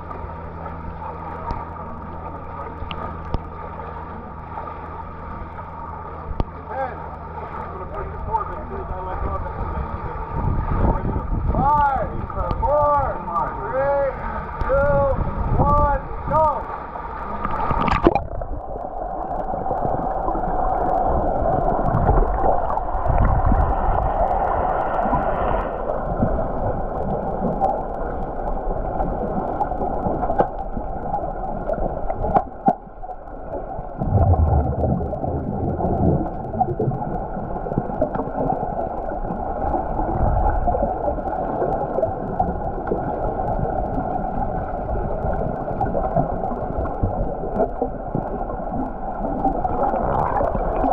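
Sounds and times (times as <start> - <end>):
underwater churning gurgle: 0.0 - 50.9
swimmers' bubbles: 14.2 - 50.9.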